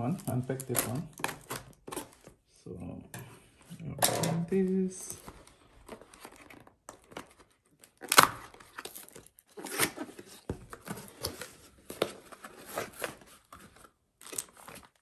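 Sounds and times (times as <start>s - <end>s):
cardboard box being opened: 5.2s - 15.0s.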